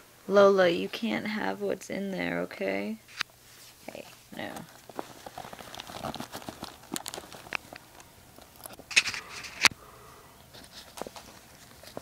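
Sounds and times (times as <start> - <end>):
nylon backpack rustling: 3.5 - 9.7, 10.5 - 12.0.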